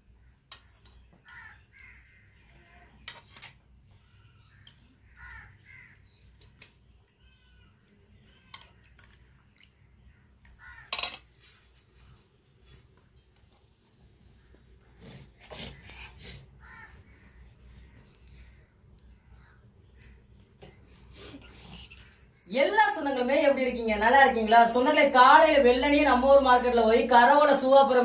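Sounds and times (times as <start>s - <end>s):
crows cawing faintly: 0.0s - 3.1s, 3.9s - 6.2s, 7.3s - 11.2s, 15.5s - 20.8s.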